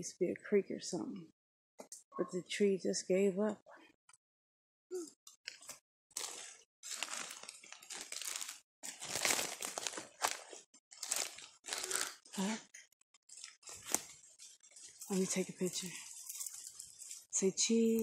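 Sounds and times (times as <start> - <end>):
footsteps crunching through leaves: 6.2 - 11.4.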